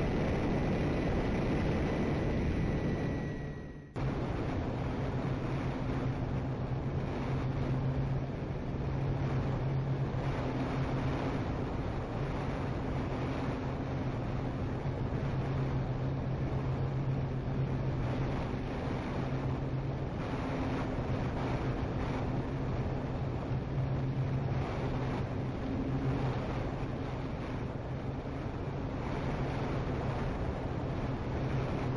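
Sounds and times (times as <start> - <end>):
wind rushing over microphone: 0.0 - 31.9.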